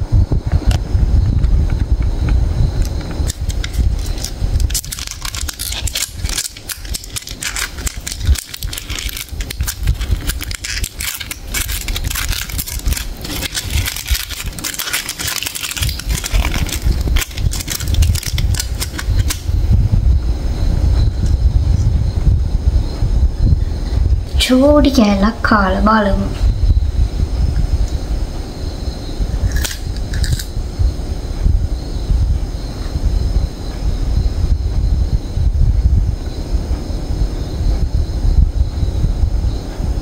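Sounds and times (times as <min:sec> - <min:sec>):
low rumble: 0:00.0 - 0:40.0
foil wrapper crinkling: 0:03.2 - 0:19.5.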